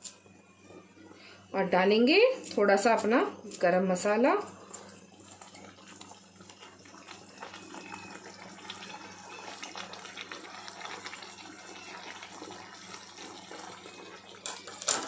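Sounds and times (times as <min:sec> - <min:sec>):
gravy bubbling in a pan: 0:04.6 - 0:14.9.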